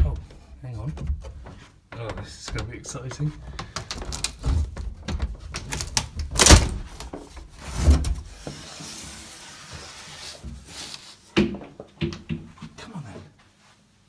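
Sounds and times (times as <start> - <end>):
knocks and thumps: 0.0 - 6.0, 11.4 - 12.8.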